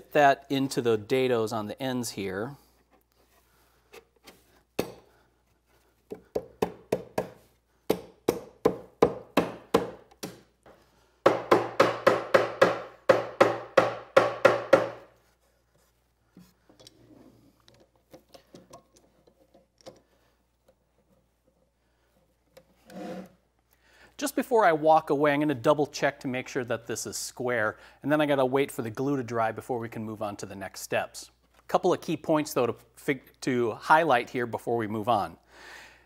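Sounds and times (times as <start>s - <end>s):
wooden mallet tapping wood: 6.1s - 10.4s, 11.3s - 15.0s.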